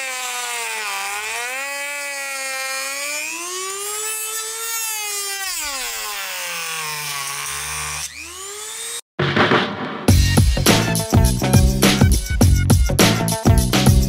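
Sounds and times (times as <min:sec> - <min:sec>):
rotary tool cutting plastic: 0:00.0 - 0:09.1.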